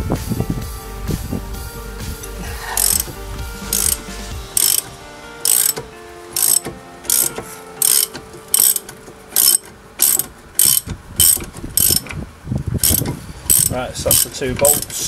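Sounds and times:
ratchet wrench clicking: 0:02.8 - 0:03.1, 0:03.7 - 0:04.0, 0:04.6 - 0:05.8, 0:06.4 - 0:12.2, 0:12.8 - 0:14.9.

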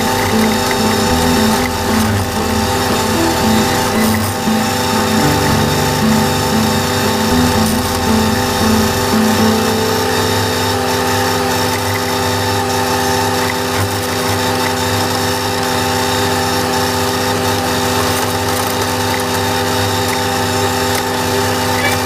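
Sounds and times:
tractor diesel engine: 0:00.0 - 0:11.2.

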